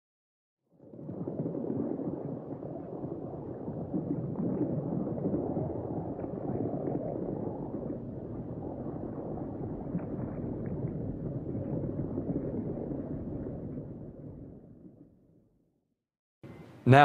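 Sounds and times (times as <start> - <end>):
underwater rush of water: 0.7 - 15.2.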